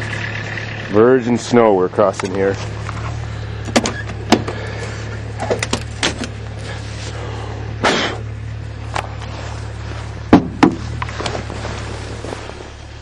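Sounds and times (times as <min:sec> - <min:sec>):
diesel engine idling: 0:00.0 - 0:13.0
car door opening: 0:03.6 - 0:04.6
footsteps crunching through snow: 0:08.6 - 0:13.0
loud knocks: 0:10.3 - 0:10.9.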